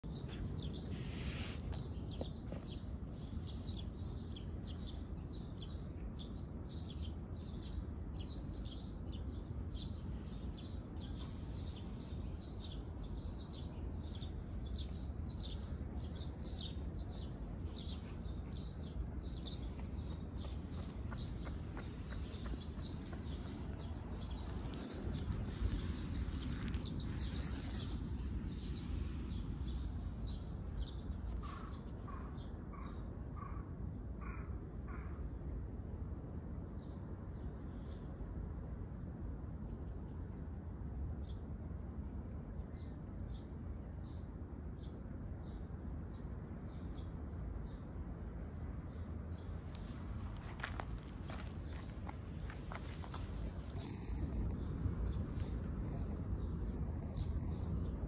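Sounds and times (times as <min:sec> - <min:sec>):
low outdoor rumble: 0:00.0 - 0:58.0.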